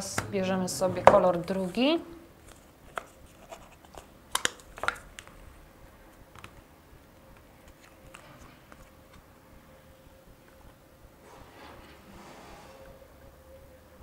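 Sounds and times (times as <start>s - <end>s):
faint handling sounds: 1.5s - 5.4s.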